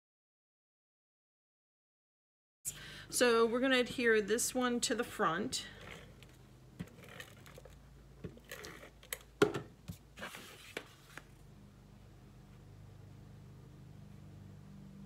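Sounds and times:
paper rustling and sliding: 9.9s - 11.4s.

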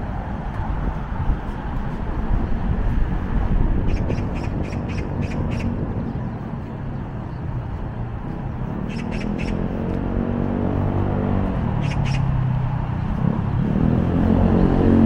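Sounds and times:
low city traffic noise: 0.0s - 15.0s
bird harsh calls: 3.8s - 6.4s, 8.8s - 9.7s, 11.8s - 12.4s.

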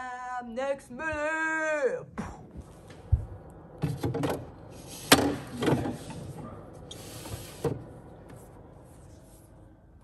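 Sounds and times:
rack shelves sliding on rails: 3.8s - 8.5s.

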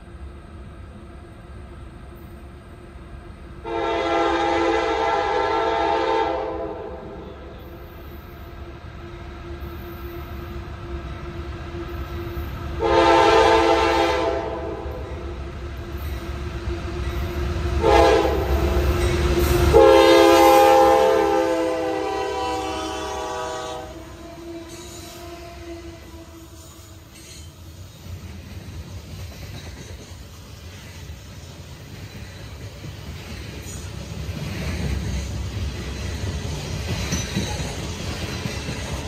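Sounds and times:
locomotive and train rumble: 0.0s - 39.0s
train air horn blasts: 3.6s - 7.7s, 12.8s - 15.1s, 17.8s - 27.2s.

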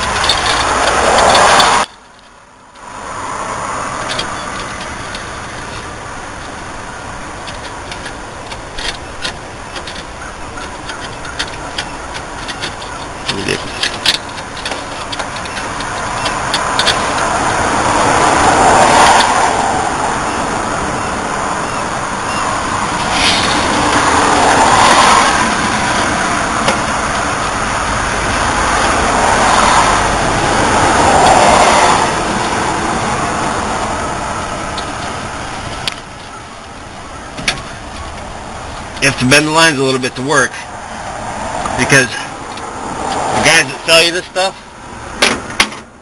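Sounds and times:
vehicles passing: 0.0s - 46.0s.

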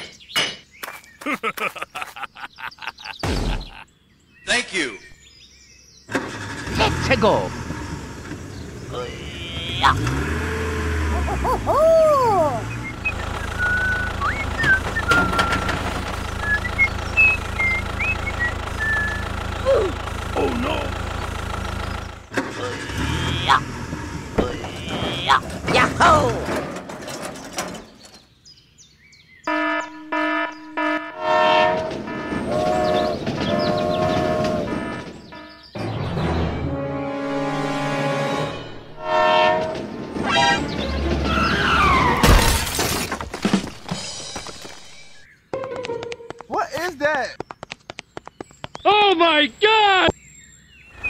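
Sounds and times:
swooping whistle-like glides: 12.0s - 15.8s
small engine running: 12.5s - 25.4s
horn toots and blasts: 22.5s - 25.5s, 29.5s - 35.7s, 36.4s - 41.1s.

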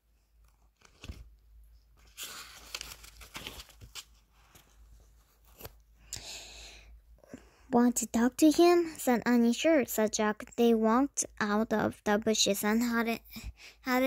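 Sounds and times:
book pages rustling: 0.3s - 5.9s.

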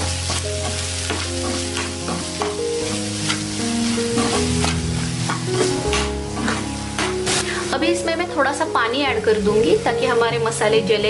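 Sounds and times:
spoon scraping a pan: 0.0s - 7.6s
background music: 0.0s - 11.0s
food sizzling in oil: 0.0s - 11.0s.

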